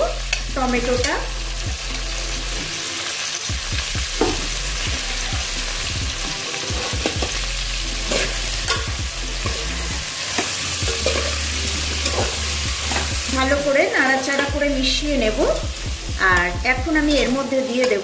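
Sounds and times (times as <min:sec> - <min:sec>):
vegetables sizzling in oil: 0:00.0 - 0:18.0
metal spatula clinking on pot: 0:08.1 - 0:09.6, 0:10.4 - 0:11.4, 0:12.0 - 0:13.1.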